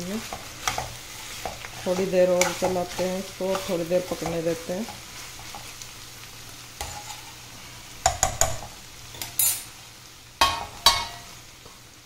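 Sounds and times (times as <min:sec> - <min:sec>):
curry sizzling in a pan: 0:00.0 - 0:12.0
spoon scraping and knocking pan: 0:00.2 - 0:05.8, 0:06.8 - 0:07.4, 0:08.0 - 0:09.7, 0:10.4 - 0:11.3.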